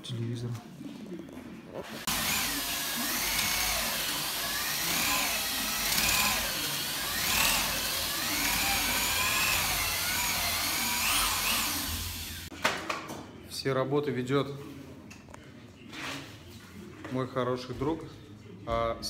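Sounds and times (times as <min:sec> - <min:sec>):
electric drill mixer whining: 0:01.8 - 0:12.5.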